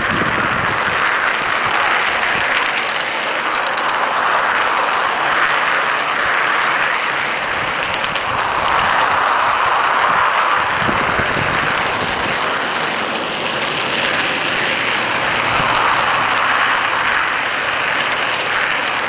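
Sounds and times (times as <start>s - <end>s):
model train wheels rushing: 0.0s - 19.0s
faint clicks: 1.6s - 10.0s.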